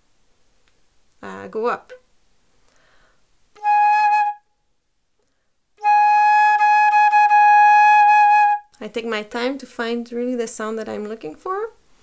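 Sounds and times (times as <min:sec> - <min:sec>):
flute playing a held note: 0:03.6 - 0:04.5, 0:05.8 - 0:08.7.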